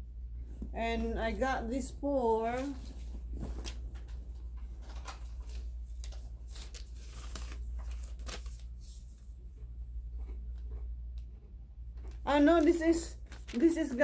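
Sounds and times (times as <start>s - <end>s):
steady low hum: 0.0s - 14.0s
paper receipt rustling: 2.1s - 9.3s, 12.0s - 14.0s.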